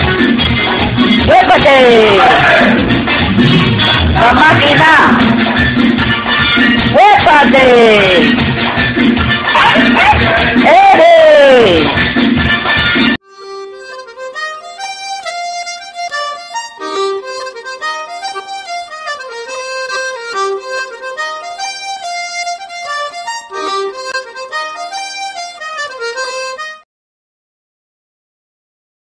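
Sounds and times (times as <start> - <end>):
instrumental background music: 0.0 - 26.8.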